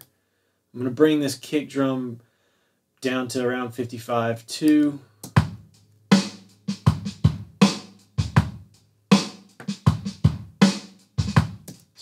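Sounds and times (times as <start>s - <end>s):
snare drum: 5.3s - 12.0s.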